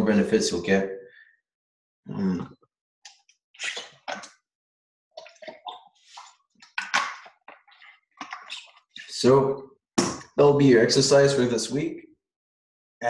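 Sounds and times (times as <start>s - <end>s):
brief vocal sound: 2.1s - 2.5s.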